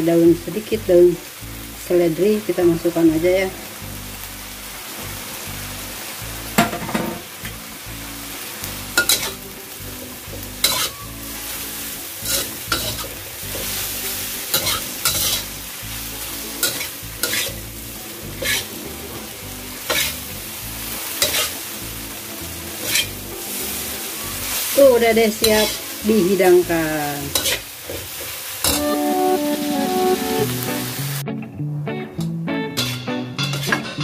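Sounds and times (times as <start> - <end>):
food sizzling: 0.0 - 31.3, 32.7 - 34.0
metal spatula scraping wok: 8.8 - 28.8, 32.8 - 34.0.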